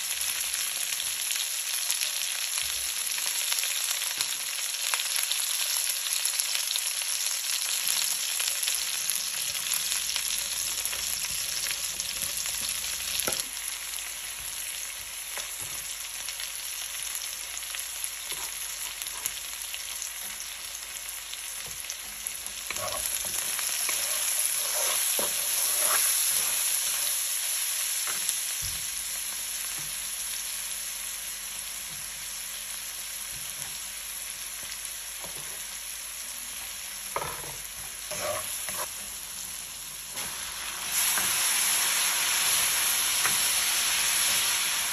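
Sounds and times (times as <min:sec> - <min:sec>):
food sizzling in oil: 0:00.0 - 0:44.9
wooden spatula scraping a pan: 0:22.2 - 0:27.0, 0:37.2 - 0:39.0.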